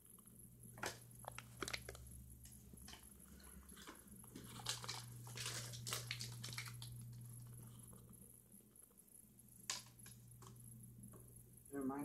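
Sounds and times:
foil snack bag crackling: 1.2 - 2.1, 2.8 - 7.6.

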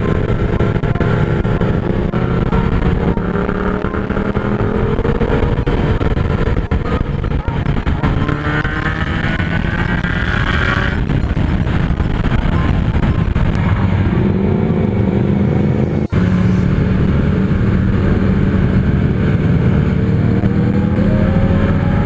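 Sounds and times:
motorcycle engine running: 0.0 - 22.0
wind rushing over microphone: 0.0 - 22.0.

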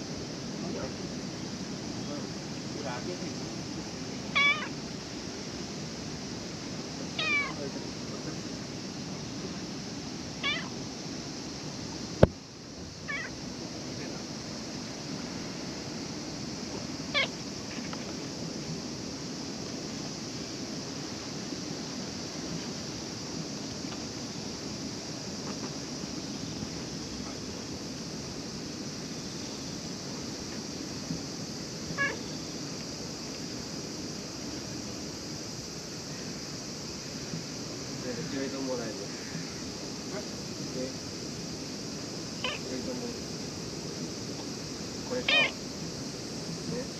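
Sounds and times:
steady background noise: 0.0 - 46.9
cat meowing: 4.3 - 4.8, 7.2 - 7.6, 10.4 - 10.8, 13.1 - 13.4, 17.2 - 17.9, 32.0 - 32.3, 42.4 - 42.7, 45.2 - 45.6.

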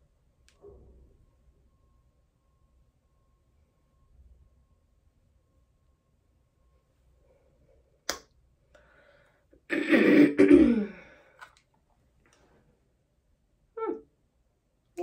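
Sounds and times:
woman clearing throat: 9.7 - 11.0.

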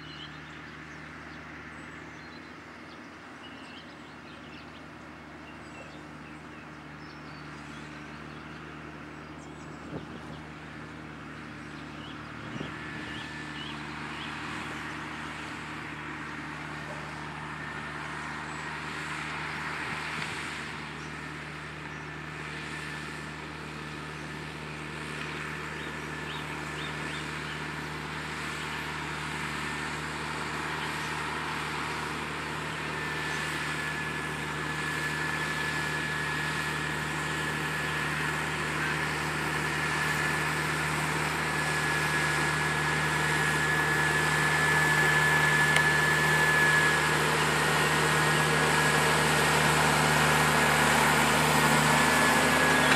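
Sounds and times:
tractor diesel engine running: 0.0 - 52.9
high whine: 32.1 - 52.9.

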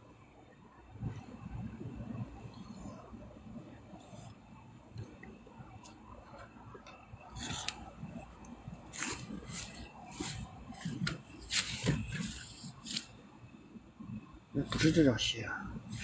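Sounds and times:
scraping against microphone: 8.9 - 13.1.

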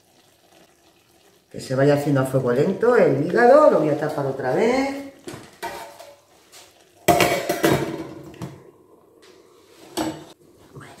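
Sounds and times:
glass lid clattering on pan: 7.1 - 8.2.

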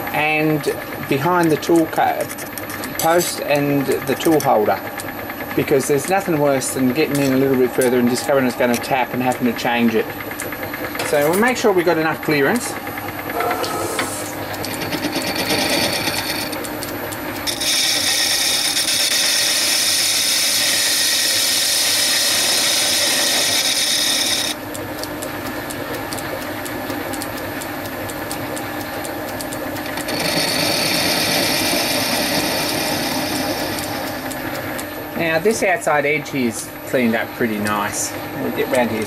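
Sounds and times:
metal lathe running: 0.0 - 39.0
lathe tool cutting scrape: 12.5 - 24.6, 29.9 - 34.9.

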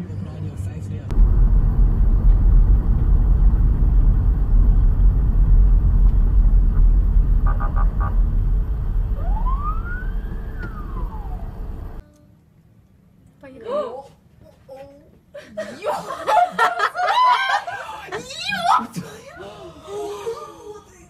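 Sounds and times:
car engine and road noise: 0.9 - 12.0
rising and falling tone: 1.1 - 12.0.

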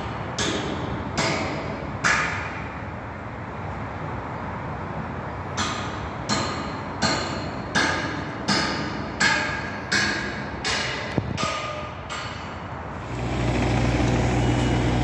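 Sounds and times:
hammer striking steel: 0.4 - 2.6, 5.6 - 12.7.

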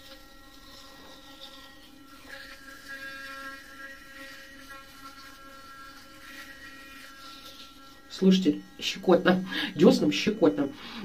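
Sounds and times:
electric toothbrush humming: 0.0 - 11.0.

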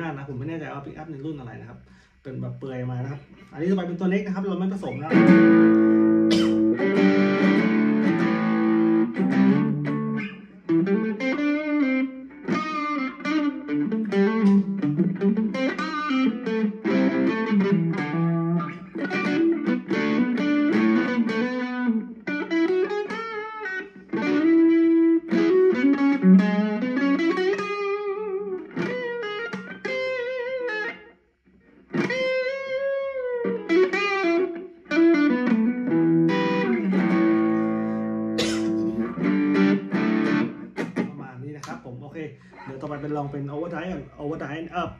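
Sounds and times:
clean electric guitar melody: 4.9 - 41.2.

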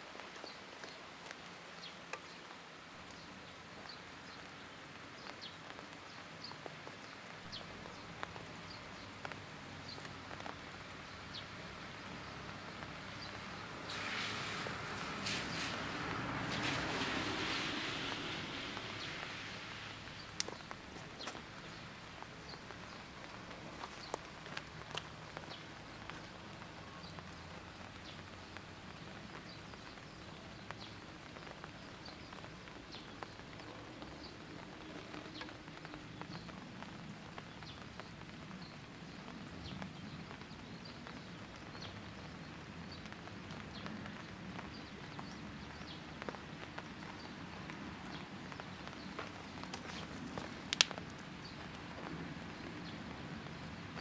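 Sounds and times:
rain dripping on foliage: 0.0 - 54.0.

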